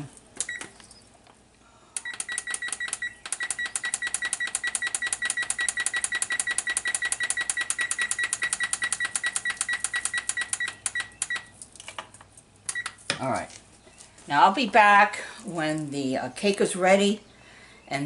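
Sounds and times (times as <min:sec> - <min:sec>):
rapid short beeps: 0:02.0 - 0:11.5.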